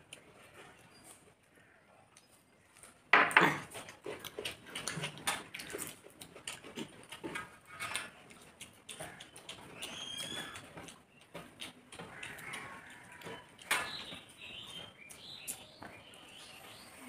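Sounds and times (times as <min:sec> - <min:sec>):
chewing and lip smacking: 0:00.0 - 0:16.8
fingers mixing rice on metal plates: 0:03.6 - 0:16.4.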